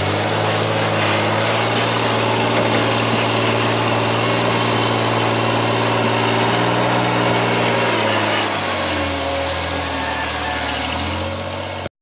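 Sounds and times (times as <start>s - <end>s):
buggy engine running: 0.0s - 11.9s.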